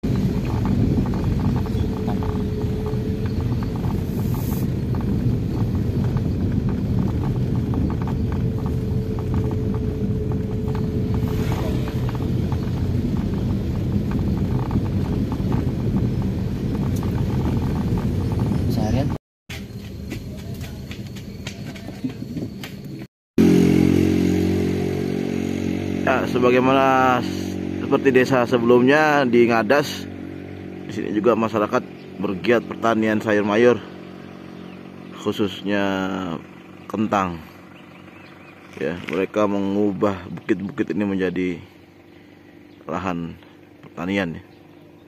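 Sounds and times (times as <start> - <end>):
tyres on road: 0.0 - 45.0
vehicle engine rumble: 0.0 - 45.0.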